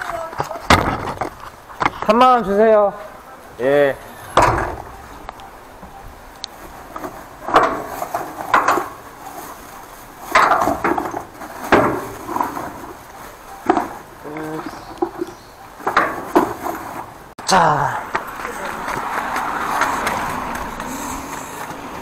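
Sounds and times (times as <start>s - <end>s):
metal tools clanking and rattling: 6.9s - 17.2s.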